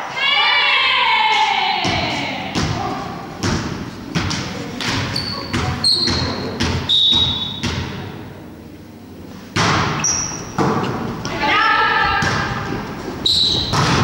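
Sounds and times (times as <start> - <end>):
volleyball thudding on hall floor: 1.8 - 8.2, 9.5 - 11.4, 12.0 - 14.0
short high squeaks: 5.1 - 7.6, 10.0 - 10.6.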